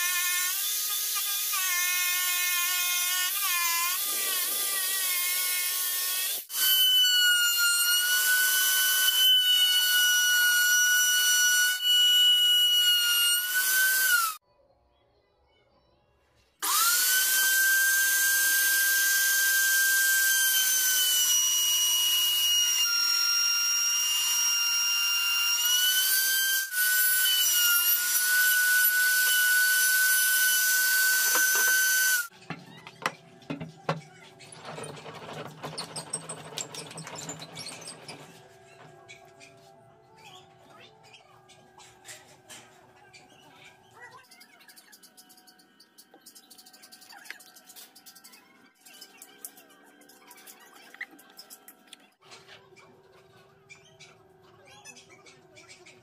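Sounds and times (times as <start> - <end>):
router whining: 16.6 - 32.3.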